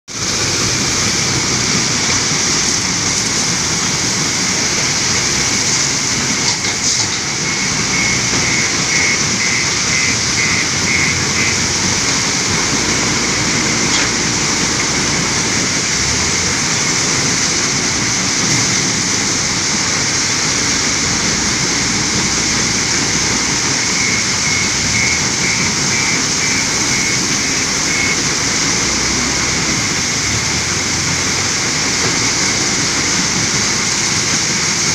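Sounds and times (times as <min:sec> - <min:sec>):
diesel engine running: 0:00.1 - 0:34.9
stone crusher plant din: 0:05.2 - 0:19.1
high beeping alarm: 0:07.0 - 0:14.5, 0:23.3 - 0:28.6.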